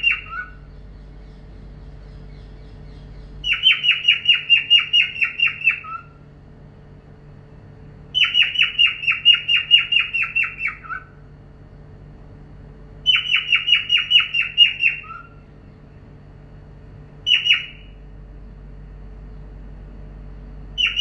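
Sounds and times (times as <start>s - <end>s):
cockatiel chirping: 0.0s - 0.6s, 3.4s - 6.1s, 8.2s - 11.0s, 13.0s - 15.3s, 17.3s - 17.8s, 20.8s - 21.0s.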